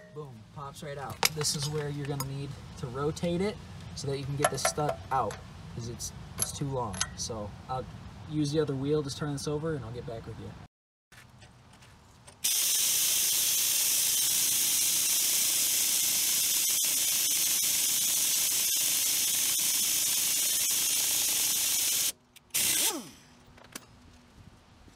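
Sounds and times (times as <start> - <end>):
pneumatic impact wrench with air hiss: 12.4 - 23.4.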